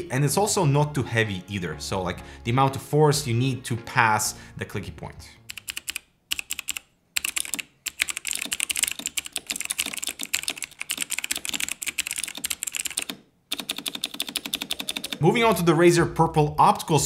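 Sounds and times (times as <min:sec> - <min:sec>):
typing on a mechanical keyboard: 0:05.5 - 0:15.2.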